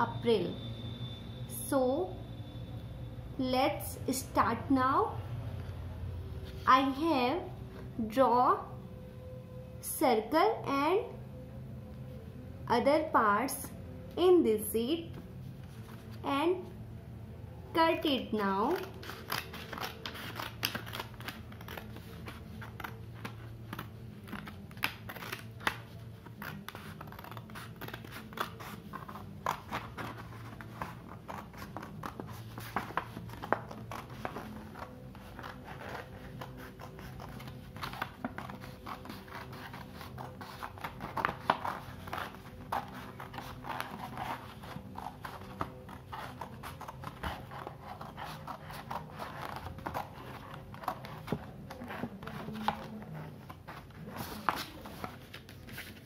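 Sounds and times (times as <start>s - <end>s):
scissors snipping paper: 18.6s - 55.2s.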